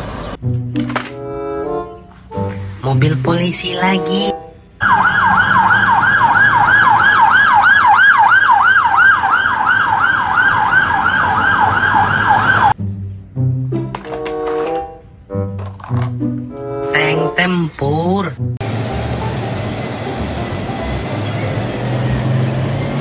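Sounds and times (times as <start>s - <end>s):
police siren yelping: 3.8s - 12.8s.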